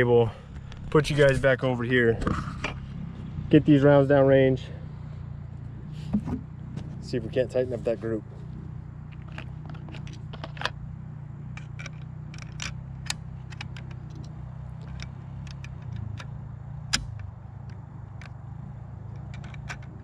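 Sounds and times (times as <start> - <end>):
steady low hum: 0.0 - 20.0
cartridges clicking into rifle: 11.5 - 16.3, 19.1 - 20.0.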